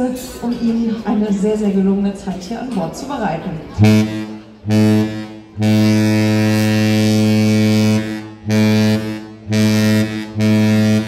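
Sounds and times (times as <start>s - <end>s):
ship's horn blasts: 3.8s - 11.0s.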